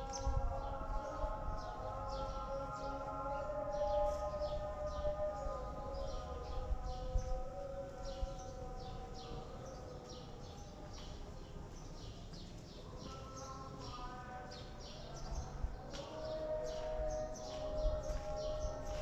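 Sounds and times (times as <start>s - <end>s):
birds chirping: 0.0s - 19.0s.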